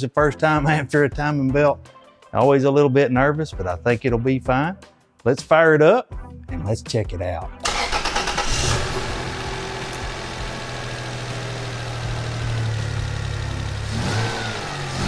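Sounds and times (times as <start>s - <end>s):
car engine idling: 7.7s - 15.0s.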